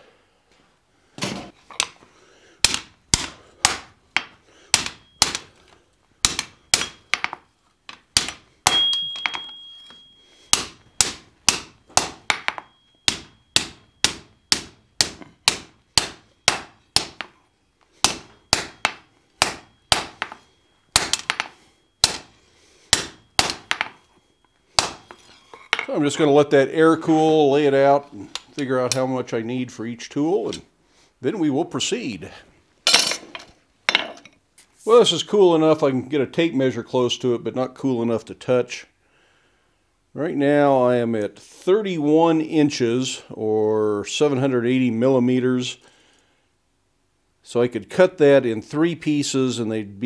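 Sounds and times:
hammer striking hot steel on anvil: 2.6 - 5.5, 6.2 - 7.4, 8.2 - 17.4, 18.0 - 22.3, 22.9 - 24.0, 24.8 - 25.8
high ringing tone: 6.5 - 7.6, 8.7 - 14.5, 16.2 - 27.9.

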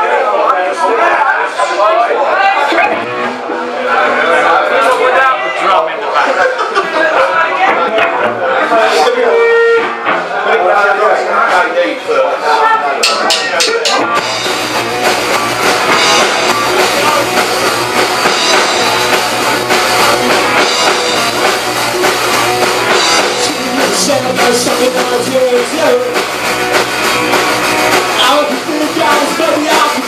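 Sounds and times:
live rock band playing: 2.6 - 4.4, 12.9 - 30.0.

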